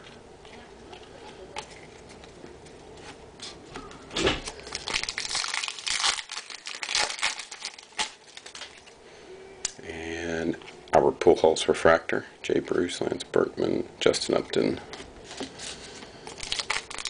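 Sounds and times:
foil wrapper crinkling and tearing: 0:04.4 - 0:09.0, 0:15.3 - 0:17.0.

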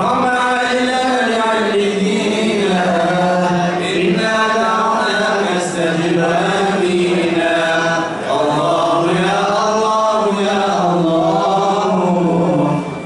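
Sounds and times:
man chanting into a microphone: 0:00.0 - 0:13.0.

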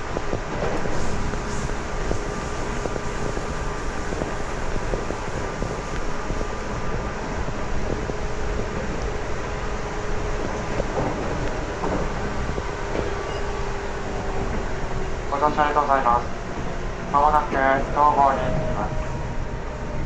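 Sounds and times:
wheels rumbling on rail: 0:00.0 - 0:20.0.

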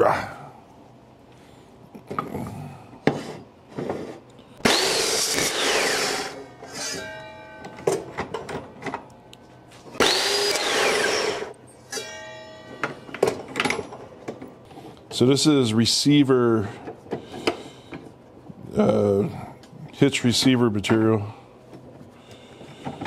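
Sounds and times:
chop saw motor whining: 0:04.6 - 0:07.3, 0:10.0 - 0:12.9.

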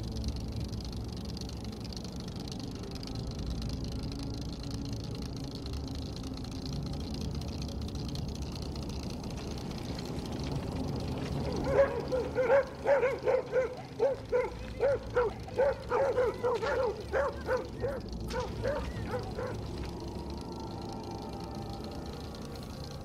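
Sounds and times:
dog barking: 0:11.5 - 0:19.6.

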